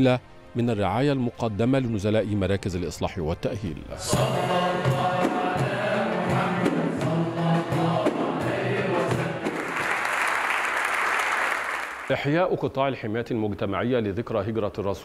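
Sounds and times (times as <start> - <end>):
male chorus singing: 4.0 - 10.0
keyboard and frame drum: 4.1 - 10.0
audience applause: 9.3 - 12.2.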